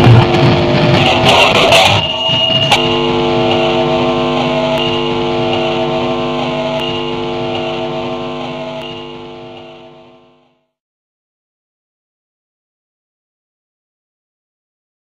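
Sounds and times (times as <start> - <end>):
electronic drone: 0.0 - 10.6.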